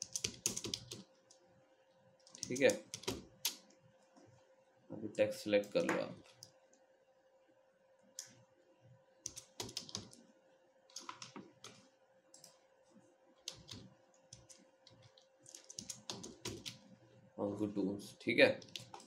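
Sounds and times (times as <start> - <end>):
computer keyboard typing: 0.0 - 1.4, 2.2 - 3.7, 9.2 - 10.2, 10.9 - 12.6, 13.4 - 16.9, 18.6 - 19.0
faint steady hum: 0.0 - 19.0.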